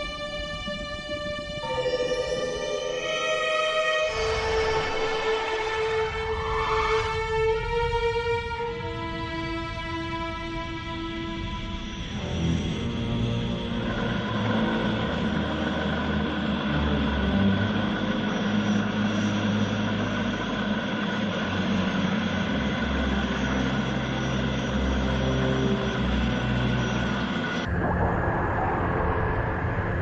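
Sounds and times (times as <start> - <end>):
deep engine rumble and drone: 0.0 - 30.0
high held tones: 1.5 - 7.5.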